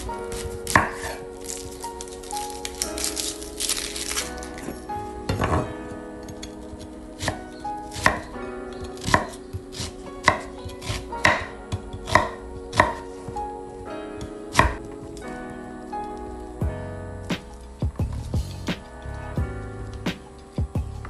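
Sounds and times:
knife chopping on wooden board: 9.0 - 13.1.

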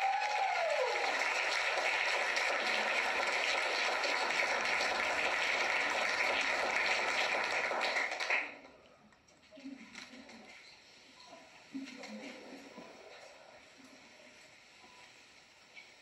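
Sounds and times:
crowd applauding: 0.0 - 8.6.

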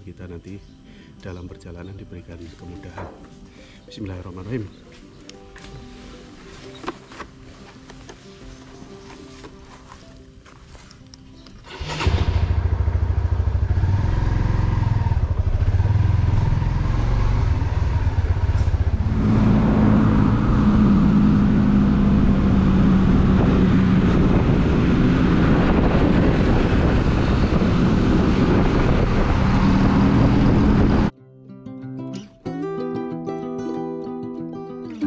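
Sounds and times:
road and wind noise: 6.5 - 31.1
motorcycle engine running: 11.6 - 31.1.

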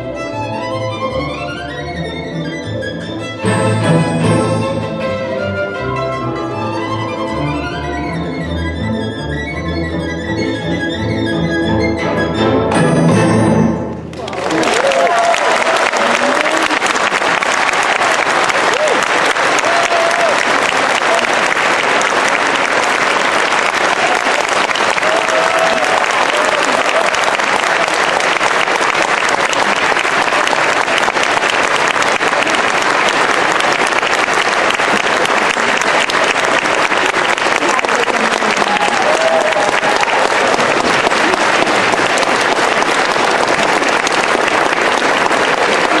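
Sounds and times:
audience applauding: 14.1 - 46.0.

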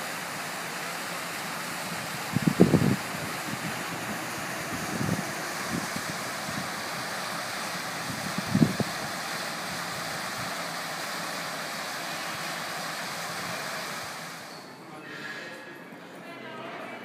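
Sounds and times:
fountain water splashing: 0.0 - 14.5.

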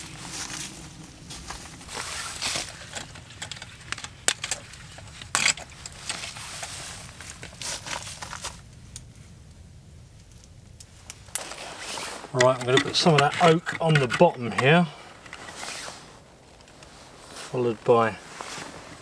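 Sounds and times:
soft rustling: 0.0 - 4.0, 4.6 - 9.4, 10.9 - 19.0
metal lantern clinks and clicks: 2.6 - 6.4, 12.4 - 15.5.

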